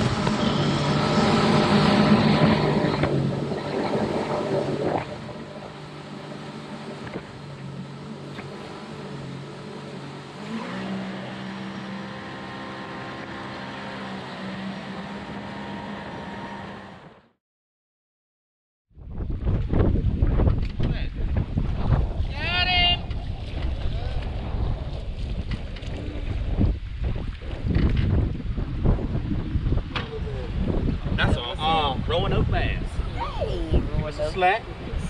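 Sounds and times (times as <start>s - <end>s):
outboard engine running: 0.0s - 17.3s, 22.9s - 32.2s.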